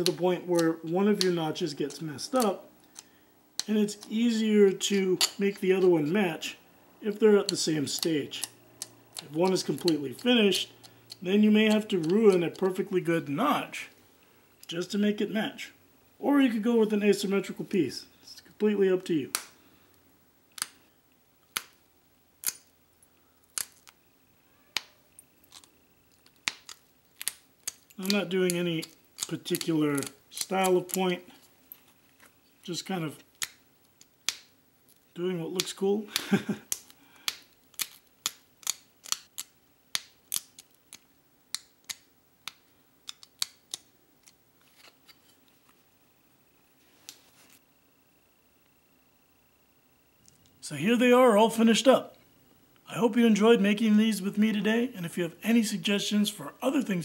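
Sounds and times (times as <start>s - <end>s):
stone flakes snapping clicks: 7.4s - 12.7s, 19.3s - 19.6s, 20.5s - 20.8s, 21.4s - 21.8s, 22.4s - 22.7s, 23.4s - 24.0s, 24.8s - 31.0s, 33.3s - 35.0s, 35.6s - 44.4s.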